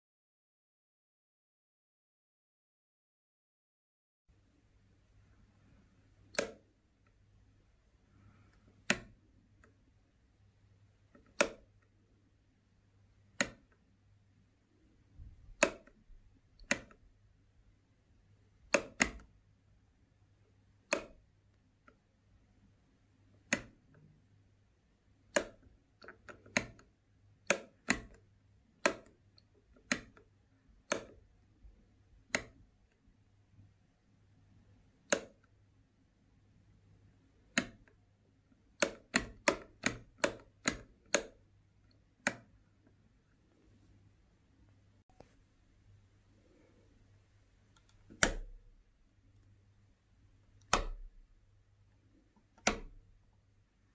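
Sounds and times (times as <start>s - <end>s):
light switch clicking: 6.2s - 7.2s, 8.6s - 9.8s, 11.1s - 11.9s, 13.3s - 13.8s, 15.2s - 16.0s, 16.6s - 17.0s, 18.7s - 19.3s, 20.8s - 22.0s, 23.4s - 24.0s, 25.3s - 31.3s, 32.3s - 32.6s, 35.0s - 35.5s, 37.5s - 38.0s, 38.8s - 42.5s, 47.8s - 48.7s, 50.6s - 51.2s, 52.4s - 53.0s.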